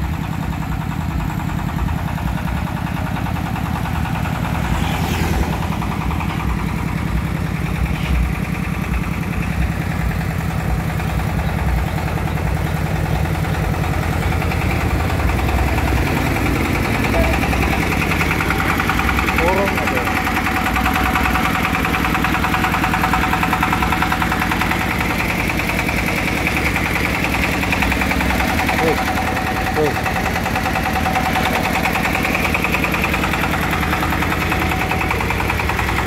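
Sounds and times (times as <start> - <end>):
sawmill engine running: 0.0 - 36.0
motorbike passing: 3.6 - 8.4, 12.5 - 23.5.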